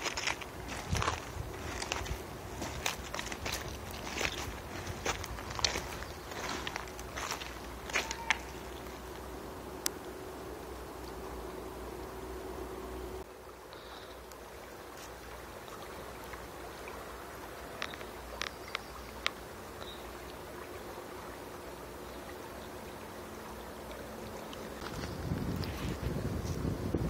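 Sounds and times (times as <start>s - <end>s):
wind buffeting microphone: 0.0s - 8.0s, 24.8s - 27.0s
stream running over stones: 0.0s - 27.0s.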